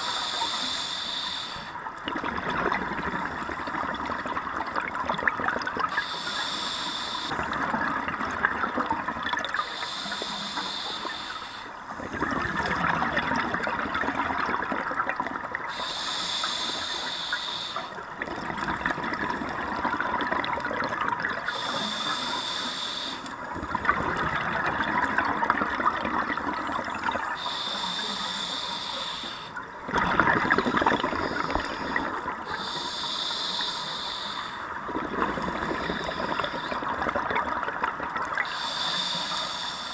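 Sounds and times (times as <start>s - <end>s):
regulator hissing inhalation: 0.0s - 1.8s, 5.9s - 7.4s, 9.6s - 11.8s, 15.7s - 18.0s, 21.5s - 23.3s, 27.3s - 29.6s, 30.6s - 36.9s, 38.4s - 39.9s
exhaled bubbles rushing: 2.0s - 5.9s, 12.1s - 15.7s, 18.2s - 21.5s, 23.5s - 27.4s, 29.8s - 32.5s, 34.7s - 38.4s.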